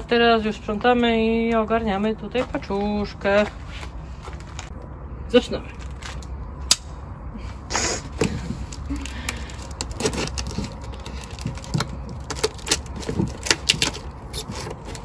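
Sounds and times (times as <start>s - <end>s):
knife cutting tape and cardboard: 8.0s - 15.0s.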